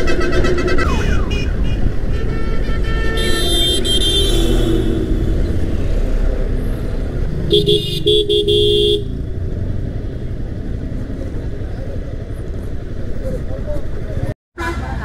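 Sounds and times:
vehicle horns honking: 0.0 - 5.7, 7.5 - 9.2, 14.6 - 15.0
motorcycle engine rumble: 0.0 - 14.4
wind: 0.0 - 15.0.

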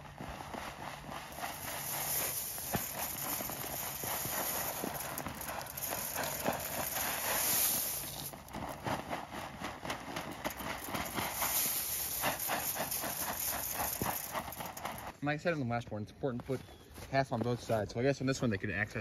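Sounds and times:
corn kernels pouring onto snow: 1.3 - 15.1.

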